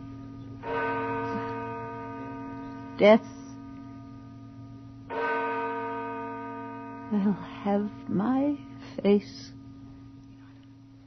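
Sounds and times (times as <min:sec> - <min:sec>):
clock bell striking: 0:00.0 - 0:08.8
low steady hum: 0:00.0 - 0:11.0.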